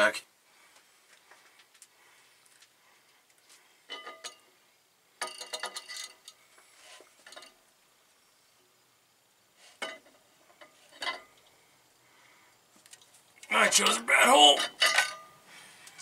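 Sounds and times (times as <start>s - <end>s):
metal clinking and scraping: 3.9s - 4.5s, 5.2s - 7.6s, 9.6s - 11.6s, 12.8s - 16.0s.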